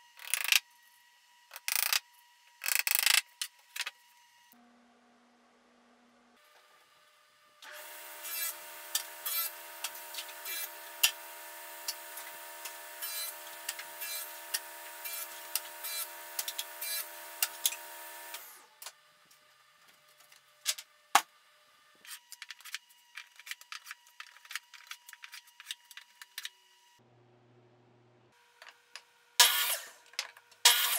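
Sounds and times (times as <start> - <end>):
table saw whining: 7.6 - 18.8.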